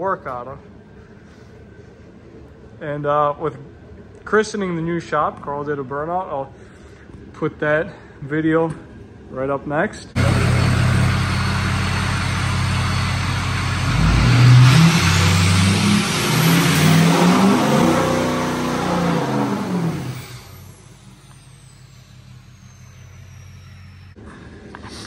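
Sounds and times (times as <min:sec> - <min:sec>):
pickup truck engine revving: 0:10.2 - 0:23.6.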